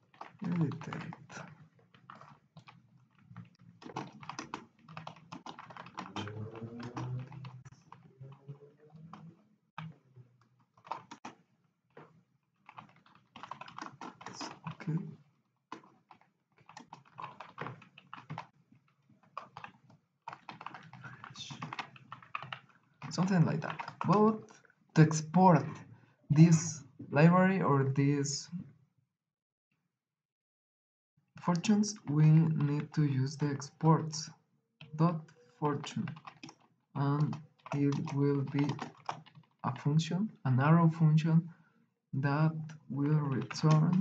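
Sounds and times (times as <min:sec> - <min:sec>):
computer keyboard typing: 0:00.0 - 0:08.1, 0:10.7 - 0:15.1, 0:15.7 - 0:18.5, 0:19.2 - 0:25.8, 0:31.5 - 0:34.3, 0:34.9 - 0:40.4, 0:42.4 - 0:44.0.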